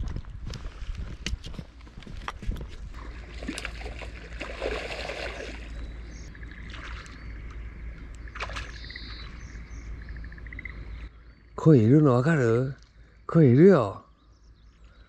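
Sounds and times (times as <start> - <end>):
footsteps on pavement: 0.0 - 3.0
fish splashing in shallow water: 3.0 - 9.6
small birds chirping: 3.4 - 15.0.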